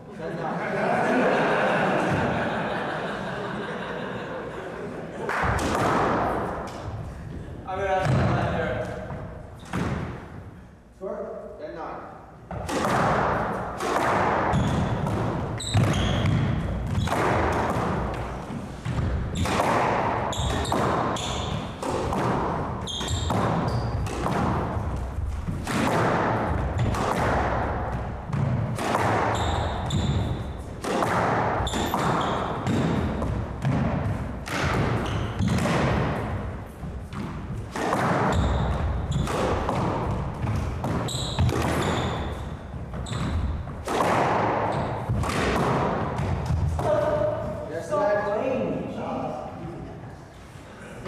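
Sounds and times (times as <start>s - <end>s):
squash ball hitting rackets and walls: 5.2s - 10.7s, 12.4s - 47.7s
shoes squeaking on wooden floor: 14.4s - 17.3s, 20.2s - 22.1s, 22.7s - 25.6s, 29.2s - 30.8s, 31.6s - 34.2s, 34.8s - 35.6s, 36.2s - 43.8s.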